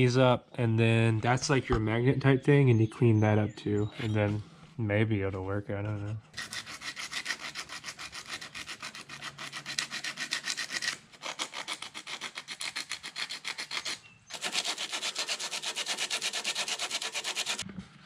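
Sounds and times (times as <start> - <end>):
abrasive scrubbing metal: 14.3 - 17.6.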